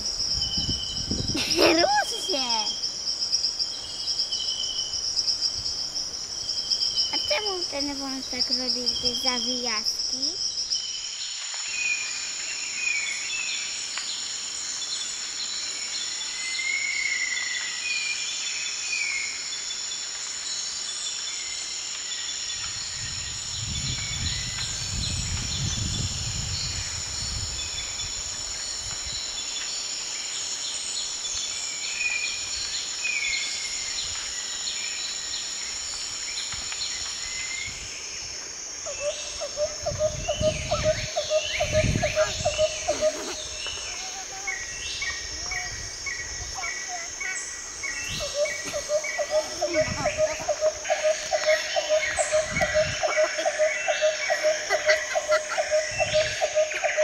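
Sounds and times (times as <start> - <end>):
insects droning: 0.0 - 57.0
birds chirping: 38.9 - 57.0.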